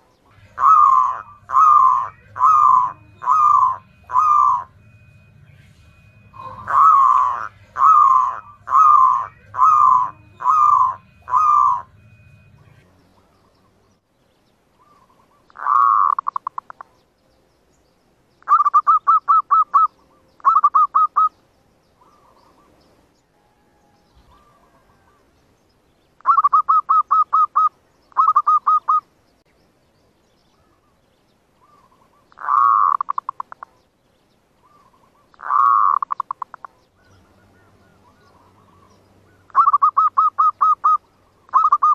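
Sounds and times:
dove cooing: 0:00.0 - 0:13.8, 0:14.8 - 0:17.0, 0:18.5 - 0:21.3, 0:23.4 - 0:25.3, 0:26.2 - 0:29.1, 0:31.6 - 0:33.8, 0:34.6 - 0:41.9.

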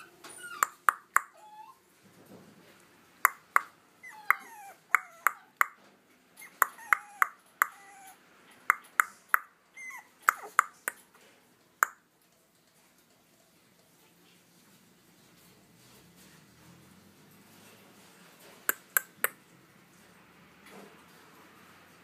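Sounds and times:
puppy whimpering: 0:00.0 - 0:01.9, 0:04.0 - 0:05.8, 0:06.4 - 0:08.9, 0:09.7 - 0:10.9.

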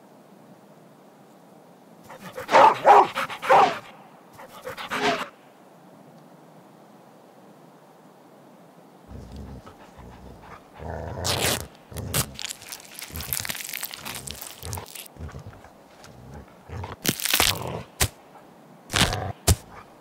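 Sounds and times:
dog chewing and crunching: 0:02.1 - 0:03.7, 0:04.4 - 0:05.1, 0:09.1 - 0:18.1, 0:18.9 - 0:20.0
dog rustling in dry grass: 0:09.8 - 0:16.4.

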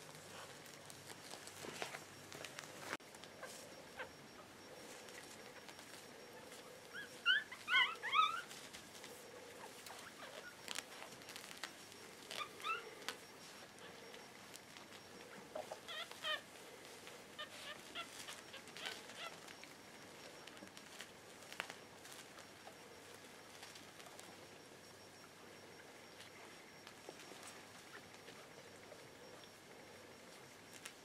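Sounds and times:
puppies squeaking: 0:03.1 - 0:20.8.

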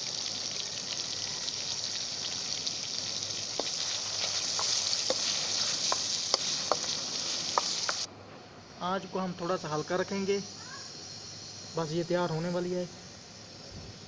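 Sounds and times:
curry sizzling in a pan: 0:00.0 - 0:08.1.

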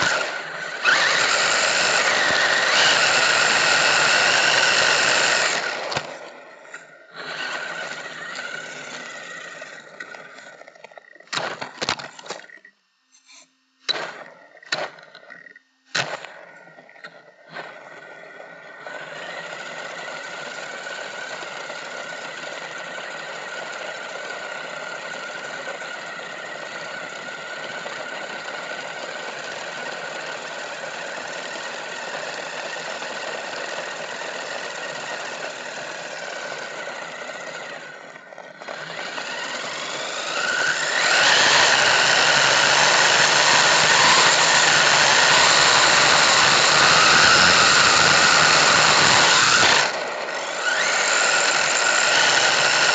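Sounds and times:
wheels over gravel: 0:00.0 - 0:12.6, 0:14.4 - 0:52.9
toy car motor whining: 0:00.0 - 0:52.9.

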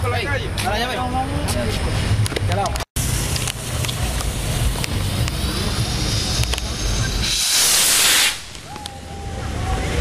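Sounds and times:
firework fountain hissing: 0:03.0 - 0:09.8.

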